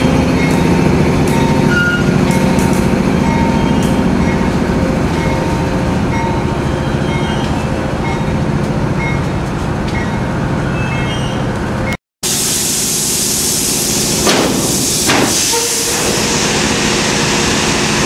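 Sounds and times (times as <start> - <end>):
freight cars rumbling on rails: 0.0 - 12.0.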